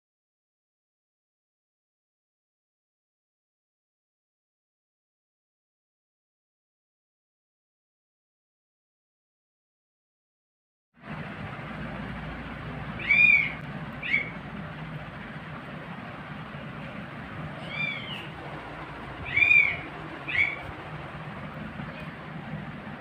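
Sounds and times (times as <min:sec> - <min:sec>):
steady low hum: 0:11.0 - 0:23.0
kittens mewing: 0:17.5 - 0:18.4, 0:19.1 - 0:20.8.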